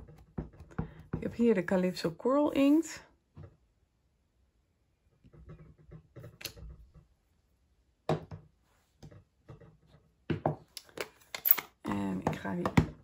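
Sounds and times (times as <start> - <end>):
block knocking on tabletop: 8.1 - 8.5.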